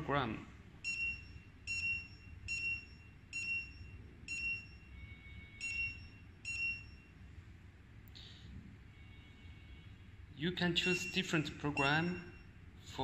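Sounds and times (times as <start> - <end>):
short high beeps: 0.9 - 7.2, 10.8 - 12.5.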